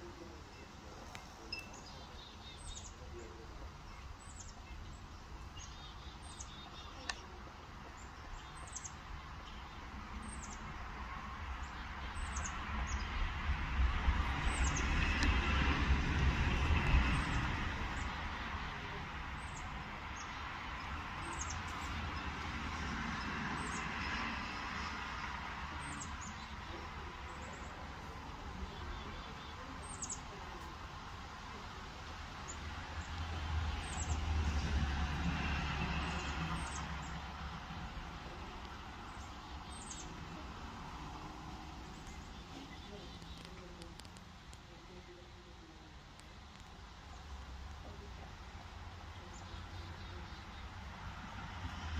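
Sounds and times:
low vehicle rumble: 0:00.0 - 0:51.9
bird chirping: 0:00.5 - 0:10.9, 0:11.6 - 0:13.3, 0:38.2 - 0:40.6.

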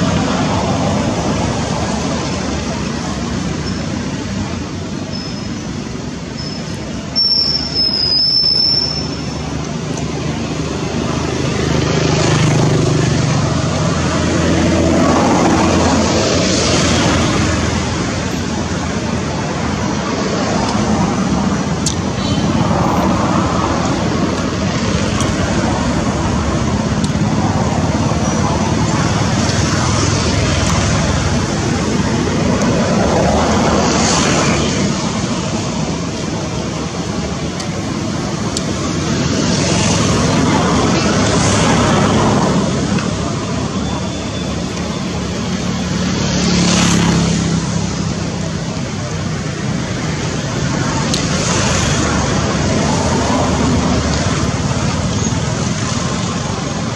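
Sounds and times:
road traffic rushing: 0:00.0 - 0:56.9.

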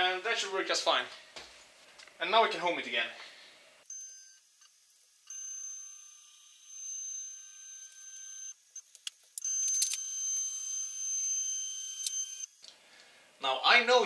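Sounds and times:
stepper motors whining: 0:03.9 - 0:12.5.

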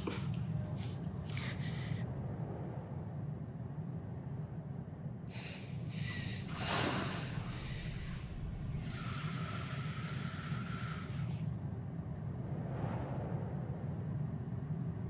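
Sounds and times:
woman's ragged breathing: 0:00.0 - 0:02.1, 0:05.3 - 0:11.6
steady low rumble: 0:00.0 - 0:15.0
woman gasping: 0:05.3 - 0:11.3.

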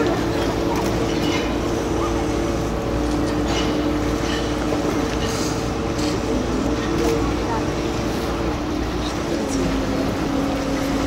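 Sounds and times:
boat diesel engine drone: 0:00.0 - 0:11.0.

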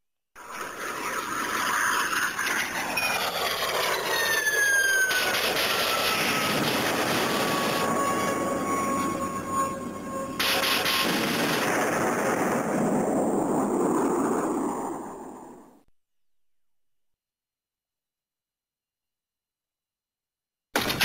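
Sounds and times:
electronic rushing noise: 0:00.4 - 0:15.6
falling electronic whistle: 0:02.9 - 0:11.1.

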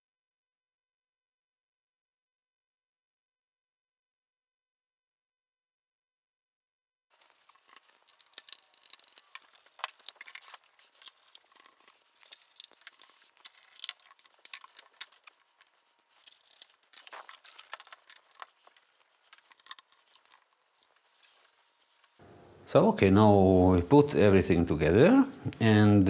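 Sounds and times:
screwdriver clicks and scrapes: 0:07.2 - 0:22.1.

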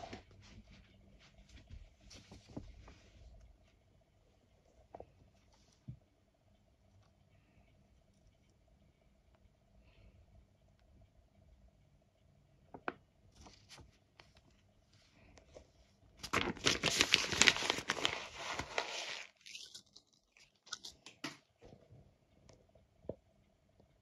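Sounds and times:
paper tearing and crinkling: 0:16.2 - 0:20.0.

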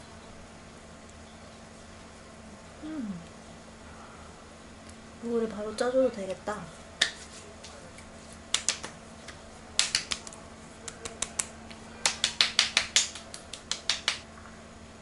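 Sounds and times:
hands patting face: 0:07.0 - 0:14.2.

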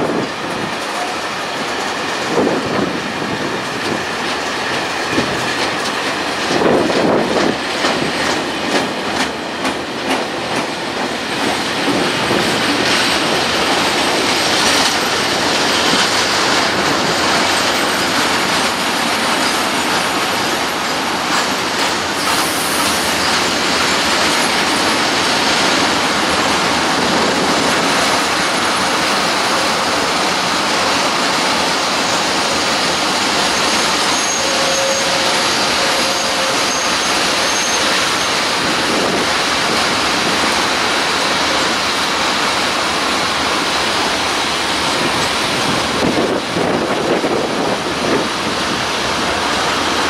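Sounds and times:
freight train wheels rumbling and rattling: 0:00.0 - 0:50.0
faint high squeal: 0:33.6 - 0:38.3.

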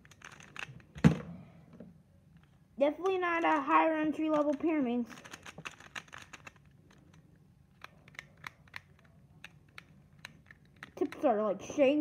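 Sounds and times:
plastic puzzle clicks: 0:03.0 - 0:11.2.

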